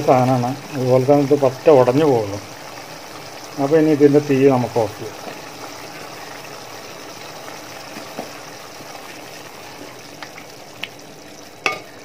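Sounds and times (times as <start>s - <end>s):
pickle simmering in a pot: 0.0s - 12.0s
spoon tapping a pot: 11.6s - 12.0s.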